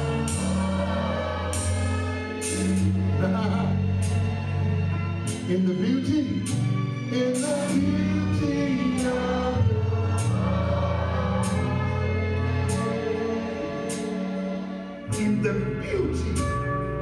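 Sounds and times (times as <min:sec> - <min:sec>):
gospel choir singing: 0:00.0 - 0:04.5, 0:07.1 - 0:14.9
low bass notes: 0:00.0 - 0:17.0.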